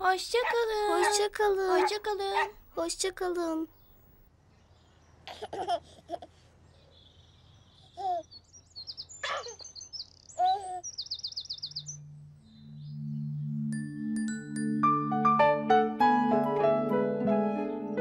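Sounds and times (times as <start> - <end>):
birds chirping: 0.0 - 5.3, 6.6 - 14.2
high bird trill: 7.8 - 13.8
soft music with low notes: 11.9 - 18.0.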